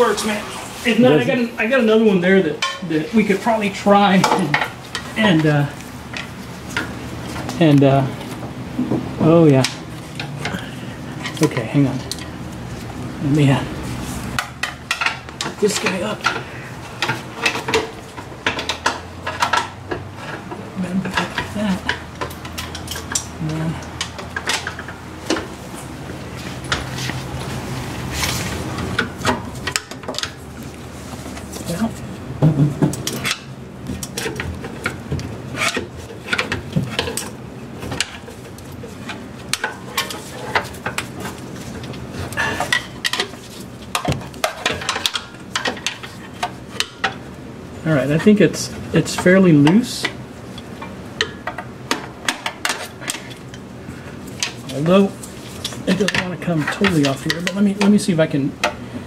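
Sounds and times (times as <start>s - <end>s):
metal tools clinking and scraping: 9.6s - 12.3s, 14.4s - 25.6s, 32.9s - 47.2s, 54.3s - 58.3s.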